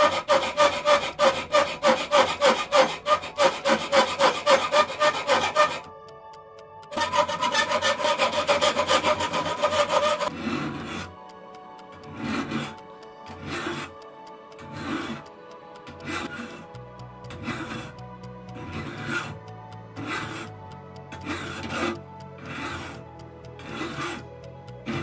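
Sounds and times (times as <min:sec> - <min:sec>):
hand file rasping on metal: 0:00.0 - 0:05.9, 0:07.0 - 0:11.1, 0:13.4 - 0:14.0, 0:14.6 - 0:16.6, 0:17.3 - 0:17.9, 0:18.6 - 0:19.3, 0:20.0 - 0:20.5, 0:21.2 - 0:23.0, 0:23.6 - 0:24.2
background music: 0:00.0 - 0:25.0.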